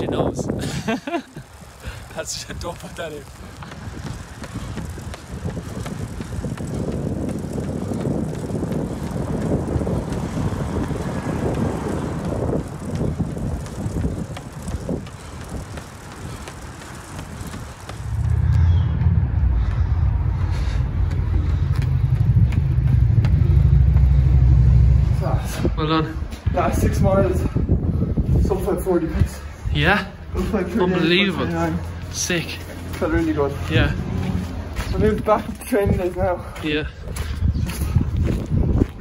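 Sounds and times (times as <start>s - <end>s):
wind and road noise: 0.0s - 39.0s
deep rumble: 3.3s - 28.5s.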